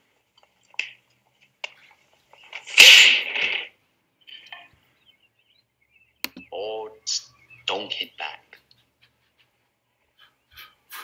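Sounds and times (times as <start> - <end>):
sharp snapping hits: 2.5 - 3.7.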